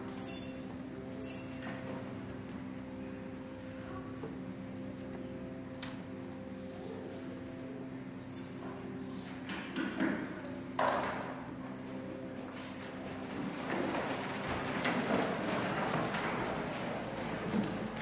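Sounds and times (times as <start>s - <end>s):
church organ holding a chord: 0.0s - 9.4s, 10.4s - 18.0s
knocks and rustles: 12.9s - 18.0s.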